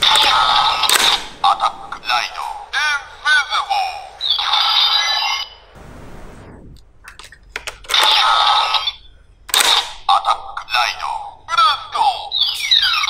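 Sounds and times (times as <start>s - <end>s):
electronic whoosh: 5.8s - 6.9s
electronic blast: 5.8s - 7.0s.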